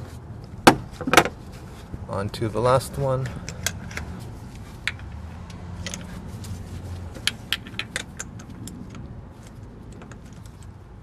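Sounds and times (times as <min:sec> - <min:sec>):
metal tools clicking and rattling: 0:05.8 - 0:06.2, 0:07.1 - 0:09.1.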